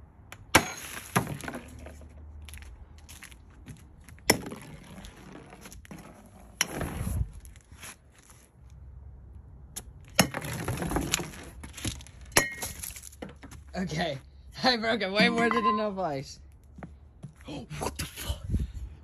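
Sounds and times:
metal bat smashing ice: 0.5 - 1.6.

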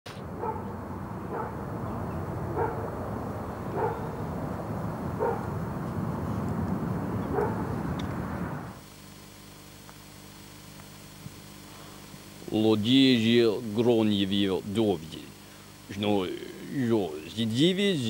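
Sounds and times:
low noisy rumble: 0.1 - 8.8
dog barking: 0.4 - 1.6, 2.5 - 3.0, 3.7 - 4.2, 5.2 - 5.5, 7.3 - 7.8.

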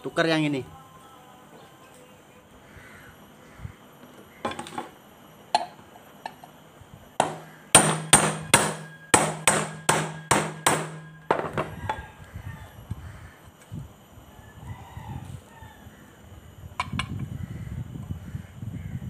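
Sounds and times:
hammer striking metal: 7.2 - 12.0.

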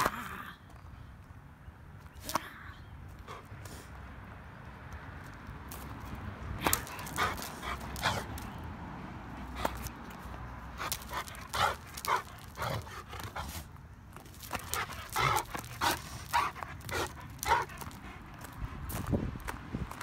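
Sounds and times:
dog panting: 6.6 - 8.5, 10.8 - 13.7, 14.4 - 19.1.

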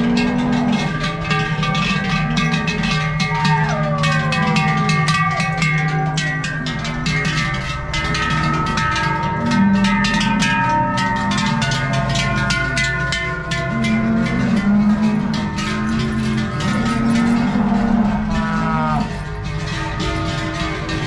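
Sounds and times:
cowbells clanging: 0.0 - 21.0
low held tones: 0.0 - 21.0.

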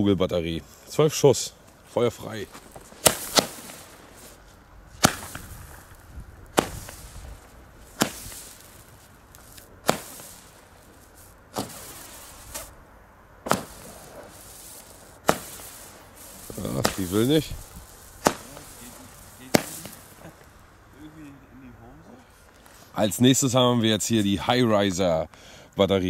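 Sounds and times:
firework launch pops: 2.4 - 12.8, 13.4 - 20.6.

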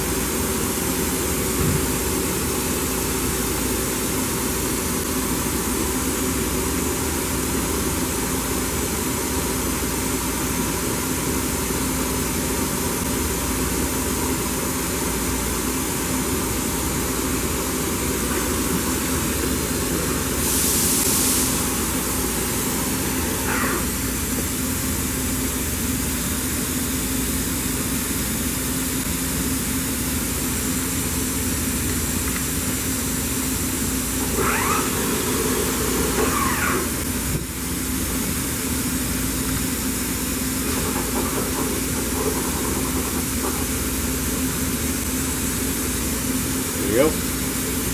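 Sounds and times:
machining center humming: 12.7 - 26.3.

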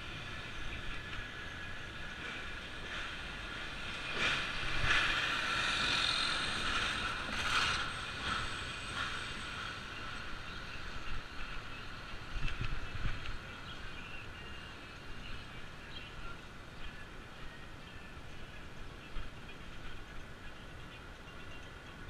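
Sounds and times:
truck passing alongside: 0.0 - 11.4
bicycle road and mechanical noise: 0.0 - 22.0.

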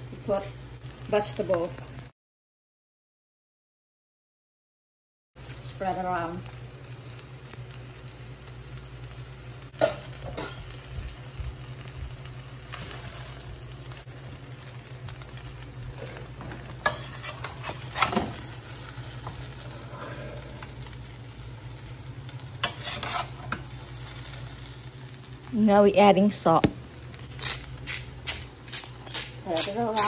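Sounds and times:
low sizzle of frying: 0.0 - 2.1, 5.4 - 30.0
metal spatula scraping wok: 15.9 - 20.8, 22.6 - 23.8.

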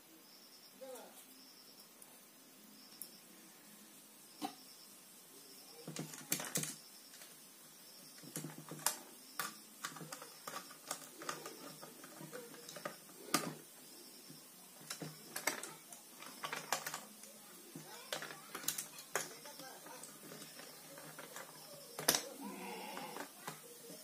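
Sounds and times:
screwdriver clicking on switch terminals: 8.2 - 13.6, 14.8 - 22.3.

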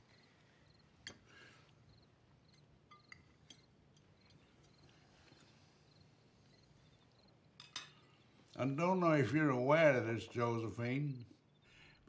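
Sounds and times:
crickets chirping: 0.0 - 8.3, 11.0 - 12.0
cutlery clicking on plates: 2.5 - 4.8, 7.6 - 8.1.

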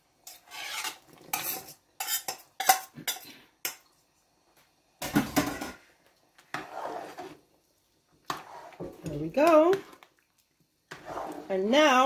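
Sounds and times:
knife scraping cutting board: 0.3 - 2.8, 6.5 - 7.4, 8.3 - 8.8, 10.9 - 11.5
metal spoon clattering on pot: 1.3 - 3.8.

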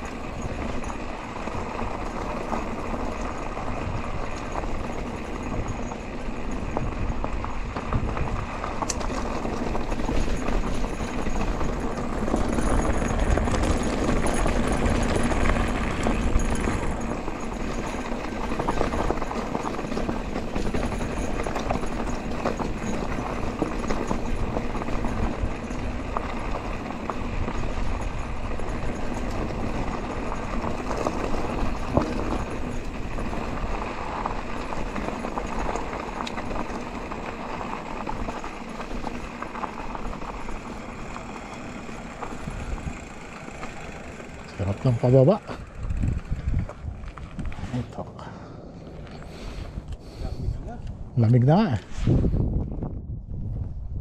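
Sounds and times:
tyres crunching over gravel: 0.0 - 49.9
bike rattling: 0.0 - 54.0
wind on microphone: 45.6 - 47.8, 49.5 - 54.0.

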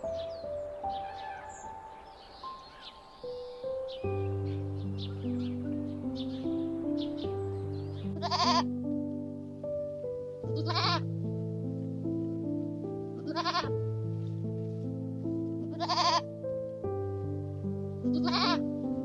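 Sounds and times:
slow background music: 0.0 - 19.0
goat bleating: 8.1 - 8.7, 10.5 - 11.1, 13.2 - 13.7, 15.6 - 16.3, 18.1 - 18.6.

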